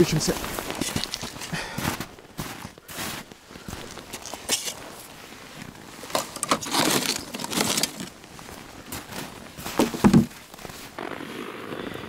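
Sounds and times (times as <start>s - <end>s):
gear rustling and scraping: 0.4s - 1.5s, 3.8s - 11.7s.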